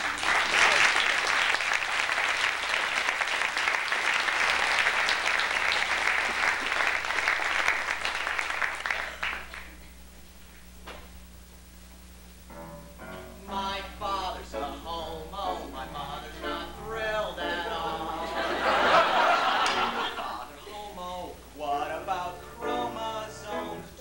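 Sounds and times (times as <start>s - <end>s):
audience applause: 0.0s - 9.8s, 18.2s - 20.5s.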